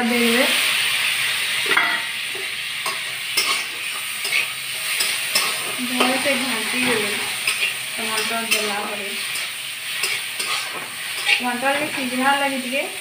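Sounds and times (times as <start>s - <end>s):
vegetables sizzling in a pan: 0.0s - 13.0s
spatula knocking and scraping pan: 1.7s - 8.8s, 10.0s - 12.1s.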